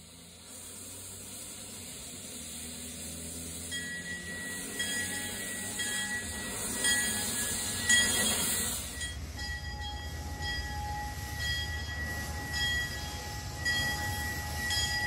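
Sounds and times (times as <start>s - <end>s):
steam locomotive hissing: 0.0s - 15.0s
bell ringing: 3.7s - 15.0s.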